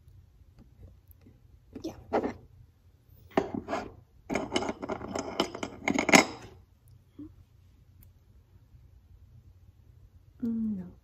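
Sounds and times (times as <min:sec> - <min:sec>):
jewelry clinking and rattling: 0:04.3 - 0:06.6.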